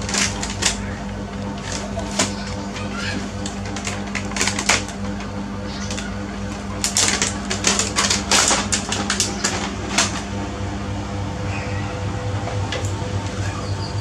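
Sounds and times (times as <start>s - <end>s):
plastic baby walker rattling: 0.0s - 0.9s, 1.6s - 4.9s, 6.8s - 10.2s
steady low hum: 0.0s - 14.0s.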